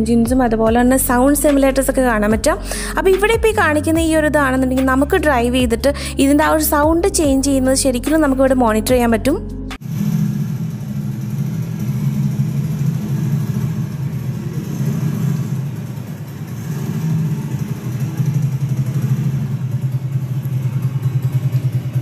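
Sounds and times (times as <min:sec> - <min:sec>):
simulated motorcycle engine running: 0:09.8 - 0:22.0.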